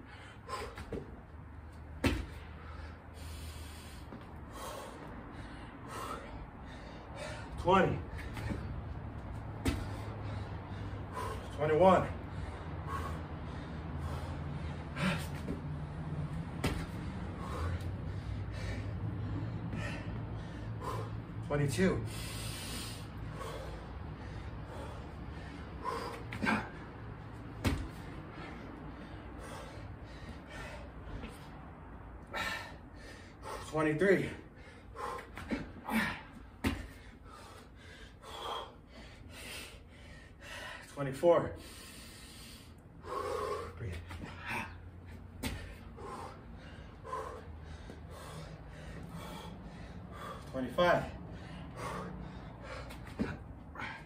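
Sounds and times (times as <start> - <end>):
man breathing hard and gasping: 0.0 - 54.0
thump on concrete: 2.0 - 2.4, 27.6 - 27.9.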